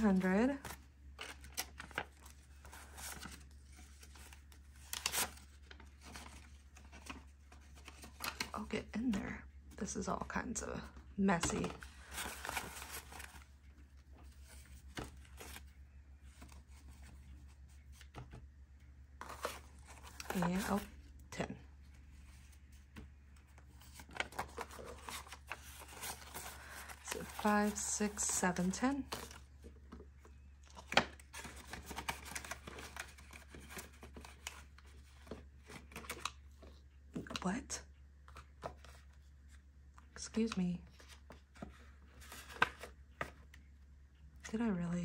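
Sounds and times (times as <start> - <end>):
banknotes rustling and crinkling: 0.0 - 37.4, 38.2 - 43.7
paper banknotes rustling: 11.4 - 13.5, 23.7 - 29.4.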